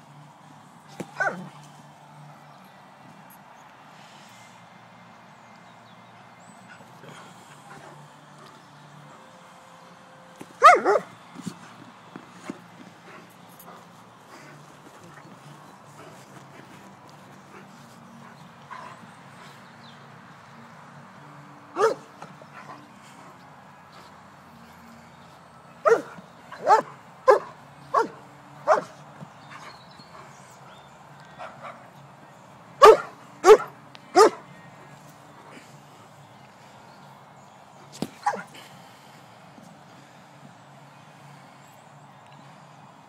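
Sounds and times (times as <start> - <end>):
dog barking: 1.2 - 1.4, 10.6 - 11.1, 21.8 - 22.0, 25.8 - 28.9, 32.8 - 34.4.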